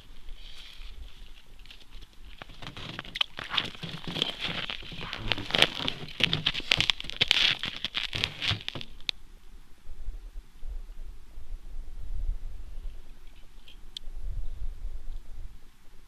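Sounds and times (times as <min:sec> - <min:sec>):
crunching on packed snow: 0:00.0 - 0:09.1.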